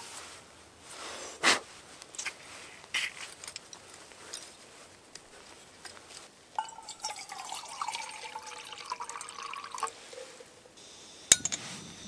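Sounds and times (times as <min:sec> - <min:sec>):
water pouring into metal pot: 0:06.6 - 0:10.6.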